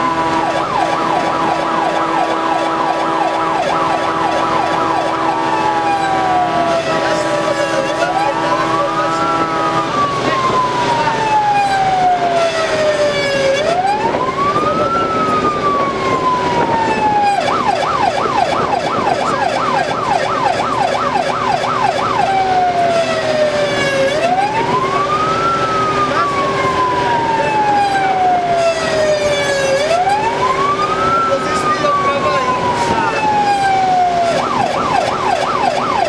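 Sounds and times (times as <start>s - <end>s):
electronic siren wail and yelp: 0.0s - 36.0s
engine and road noise: 0.0s - 36.0s
held multi-tone horn note: 6.9s - 10.3s.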